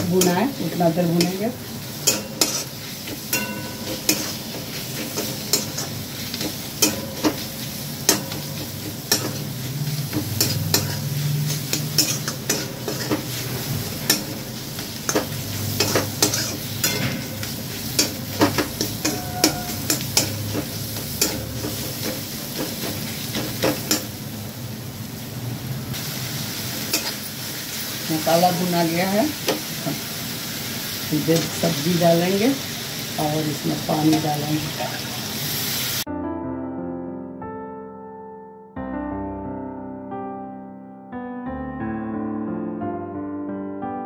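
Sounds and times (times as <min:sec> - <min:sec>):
masala sizzling in oil: 0:00.0 - 0:36.1
metal spatula scraping a pan: 0:01.2 - 0:24.1, 0:26.8 - 0:27.3.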